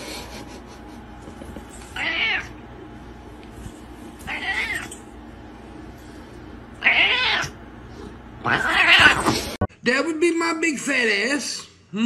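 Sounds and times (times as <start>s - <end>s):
cat meowing: 2.0s - 2.6s, 4.3s - 5.0s, 6.8s - 7.6s, 8.4s - 9.3s.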